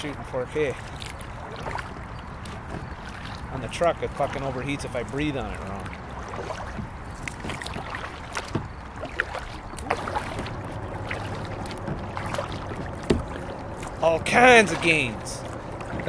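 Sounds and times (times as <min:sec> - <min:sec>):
paddle dipping into water: 0:00.0 - 0:16.0
short splashes: 0:00.0 - 0:16.0
light knocks: 0:11.6 - 0:14.0.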